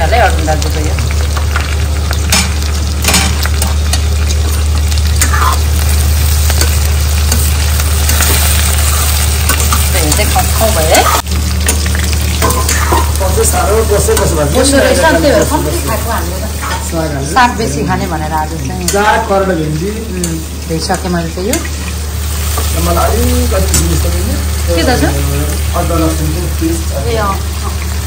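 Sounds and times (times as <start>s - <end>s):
vegetables sizzling in a pan: 0.0s - 28.0s
metal spatula scraping pan: 12.4s - 13.2s.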